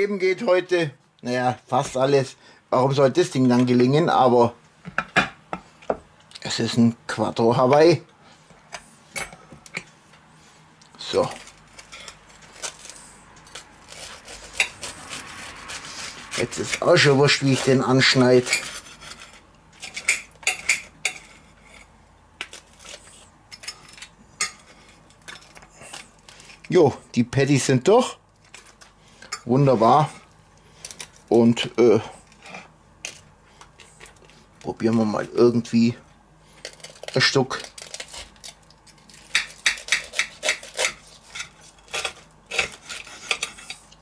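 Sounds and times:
knife scraping through toasted crust: 11.1 - 26.7, 36.5 - 44.0.

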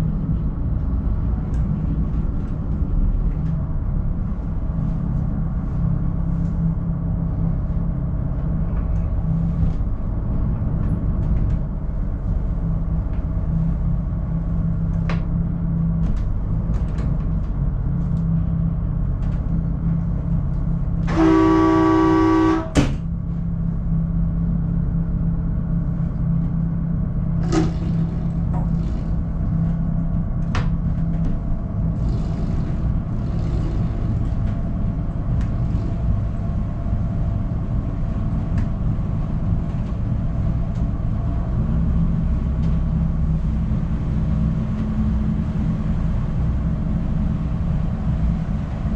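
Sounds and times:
boat diesel engines running: 0.0 - 48.9
boat horn blast: 21.0 - 23.0.

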